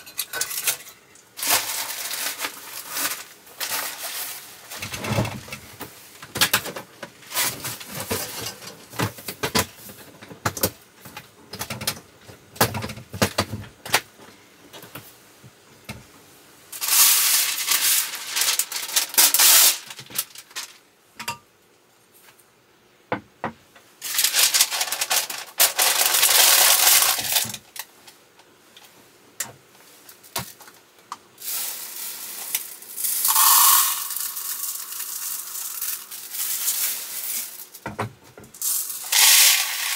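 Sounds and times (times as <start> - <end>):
rustling hissing noises: 0.0 - 6.2, 16.7 - 20.8, 24.0 - 37.8.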